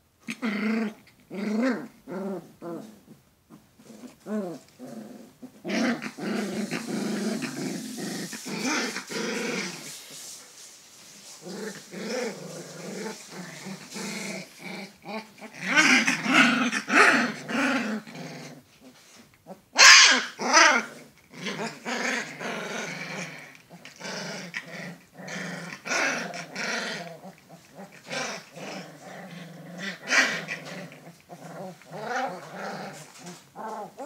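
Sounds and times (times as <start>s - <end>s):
puppies growling: 0.2s - 10.2s, 11.2s - 34.0s
puppies yapping: 19.8s - 20.8s
puppy crying: 19.8s - 20.9s.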